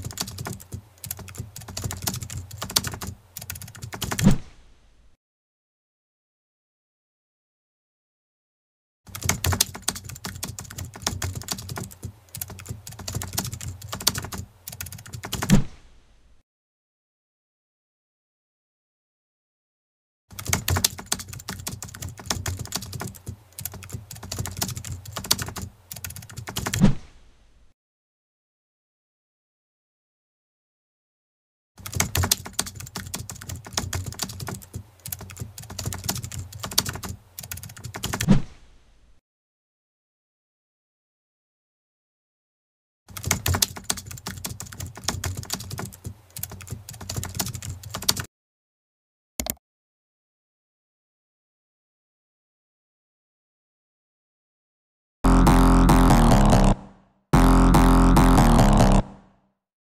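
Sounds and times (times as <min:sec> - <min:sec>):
keyboard typing clicks: 0:00.0 - 0:04.2, 0:09.1 - 0:15.5, 0:20.4 - 0:26.8, 0:31.8 - 0:38.2, 0:43.1 - 0:48.3, 0:49.4 - 0:49.6
keyboard key clicks: 0:49.4 - 0:49.6.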